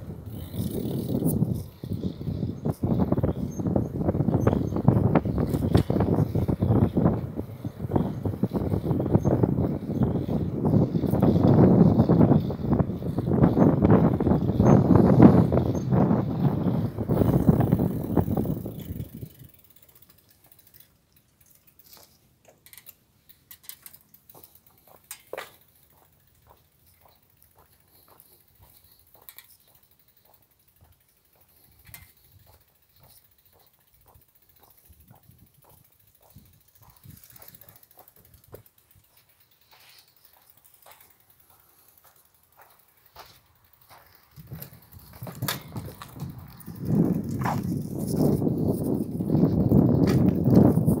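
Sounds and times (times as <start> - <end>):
bicycle freewheel ticking: 0.0 - 51.0
bicycle tyre and wind rumble: 0.0 - 51.0.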